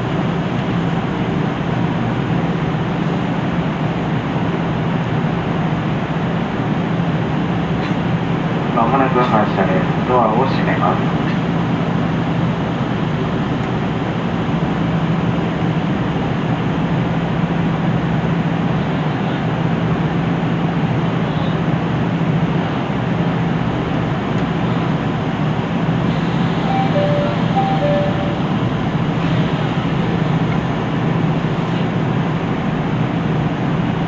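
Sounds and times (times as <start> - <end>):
diesel railcar engine idling: 0.0 - 34.0
short two-note tone: 26.6 - 28.6.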